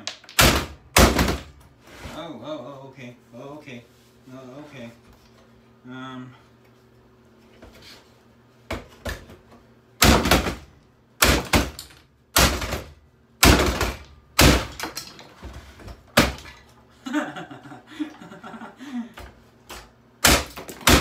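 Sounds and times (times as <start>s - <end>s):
hammer smashing a boombox: 0.4s - 1.6s, 10.0s - 15.2s, 16.1s - 16.6s, 20.2s - 21.0s
rattle of loose parts: 13.5s - 15.4s.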